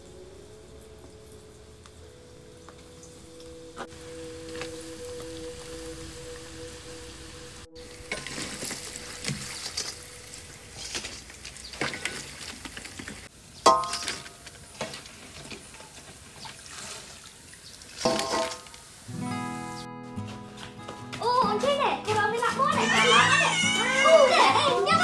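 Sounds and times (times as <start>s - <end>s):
oil bubbling and crackling: 7.8s - 19.1s
metal skimmer clanging on wok: 13.7s - 14.3s.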